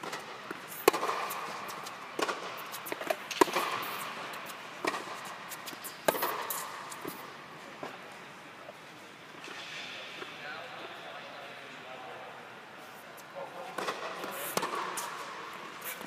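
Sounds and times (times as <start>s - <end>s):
tennis ball bouncing: 0.0s - 7.2s, 13.8s - 15.2s
tennis ball struck by rackets: 0.0s - 7.2s, 13.8s - 15.3s.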